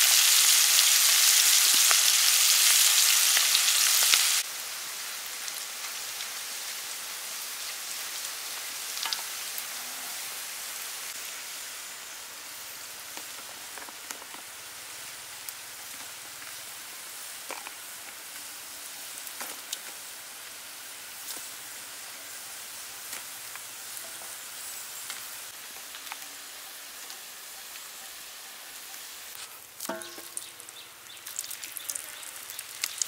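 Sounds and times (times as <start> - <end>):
oil popping and crackling: 0.0 - 4.5, 7.6 - 9.7, 13.0 - 20.3, 22.7 - 27.4, 29.3 - 33.0
onion rings deep-frying in oil: 0.0 - 33.0.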